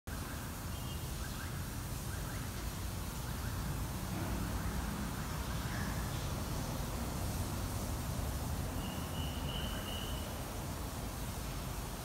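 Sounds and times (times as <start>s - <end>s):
outdoor background hiss: 0.1s - 12.0s
faint bird chirps: 8.8s - 10.4s.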